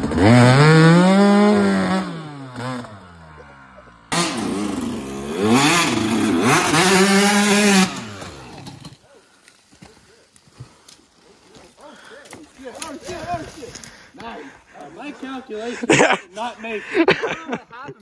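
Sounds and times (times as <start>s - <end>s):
dirt bike engine revving: 0.0s - 9.0s.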